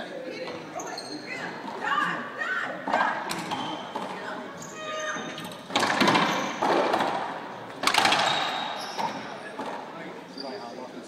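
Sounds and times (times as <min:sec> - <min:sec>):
sneakers squeaking on hardwood: 0:00.4 - 0:02.2, 0:03.0 - 0:10.8
racquetball cracks echoing: 0:05.7 - 0:09.8.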